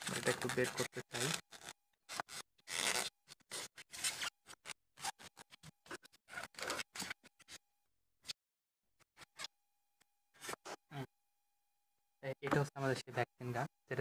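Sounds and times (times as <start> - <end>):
plastic packaging scratching and rustling: 0.0 - 5.6.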